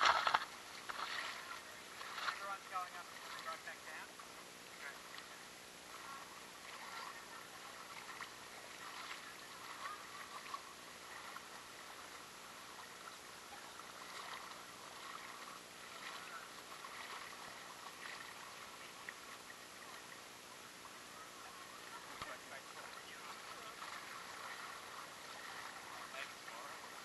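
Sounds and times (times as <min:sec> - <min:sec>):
creek flowing and gurgling: 0:00.0 - 0:27.0.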